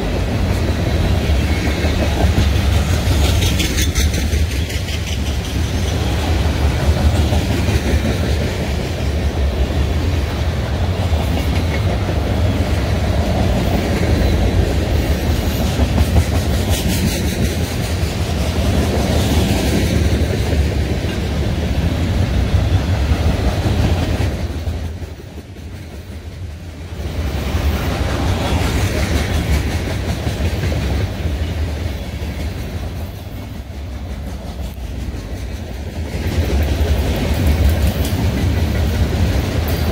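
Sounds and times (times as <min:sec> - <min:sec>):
freight train wheels rumbling on rails: 0:00.0 - 0:39.9.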